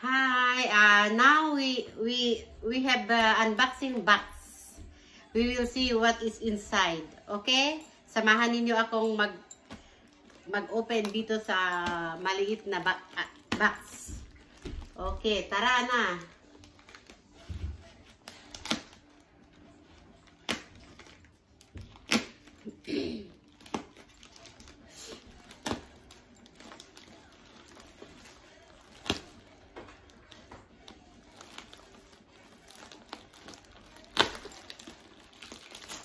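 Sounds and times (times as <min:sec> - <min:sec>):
plastic bag tearing and crinkling: 0:14.4 - 0:36.0.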